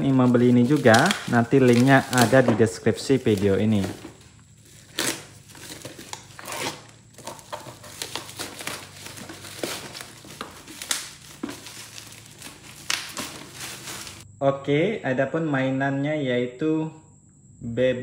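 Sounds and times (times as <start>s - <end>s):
plastic bag crinkling and tearing: 0.0s - 14.2s
utility knife cutting plastic: 0.1s - 14.2s.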